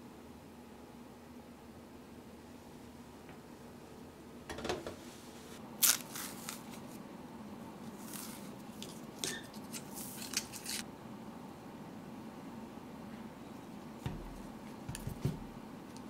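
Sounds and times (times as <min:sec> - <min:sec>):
banana peel tearing: 0:05.8 - 0:06.8.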